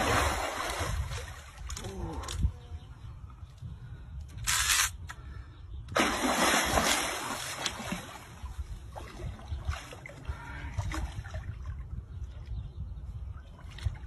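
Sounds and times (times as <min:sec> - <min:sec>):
fish thrashing and splashing water: 0:06.0 - 0:10.1.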